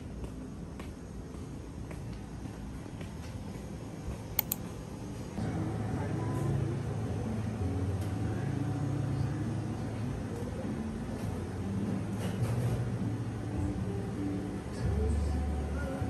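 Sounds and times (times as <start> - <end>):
sharp clicks: 4.4 - 4.7.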